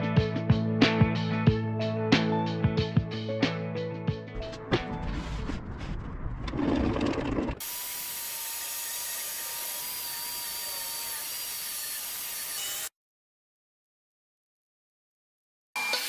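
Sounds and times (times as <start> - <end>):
table saw cutting plywood: 6.5 - 12.9, 15.8 - 16.0.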